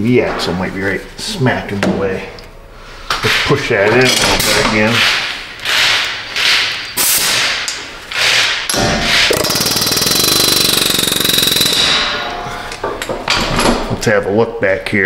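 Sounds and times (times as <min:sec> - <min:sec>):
pneumatic air tool hammering: 0:05.0 - 0:12.4.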